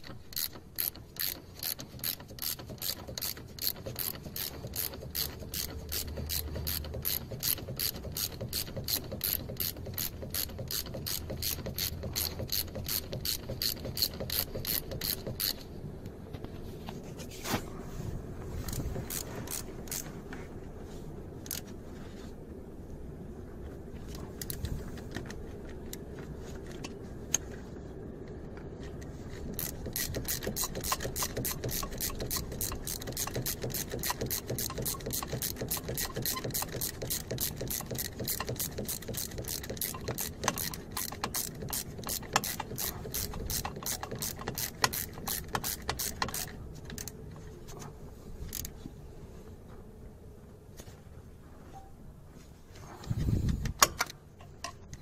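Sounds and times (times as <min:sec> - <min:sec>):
socket ratchet clicking: 0:00.0 - 0:15.7, 0:29.6 - 0:47.2.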